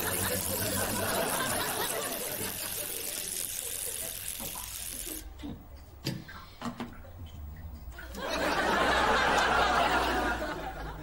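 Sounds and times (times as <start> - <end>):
studio audience laughter: 0.0 - 4.3, 8.1 - 11.0.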